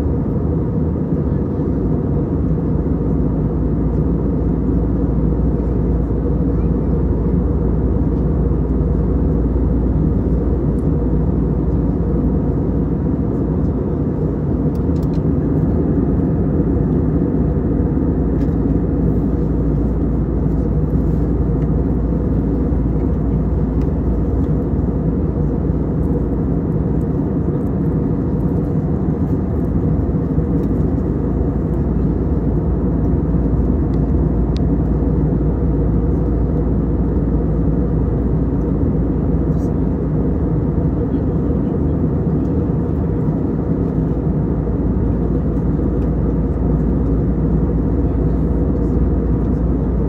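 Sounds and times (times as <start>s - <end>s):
jet engines droning: 0.0s - 50.0s.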